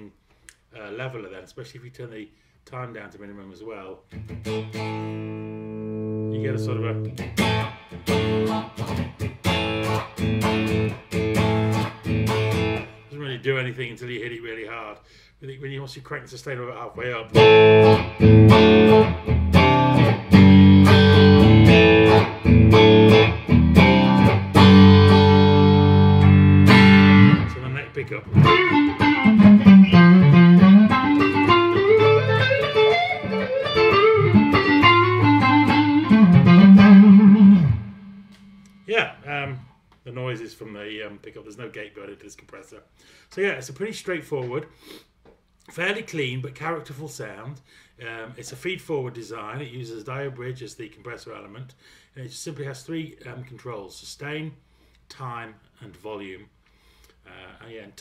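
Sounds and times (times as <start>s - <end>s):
clean electric guitar strumming chords: 4.2s - 13.0s, 17.3s - 39.7s
low bass notes: 17.4s - 32.5s.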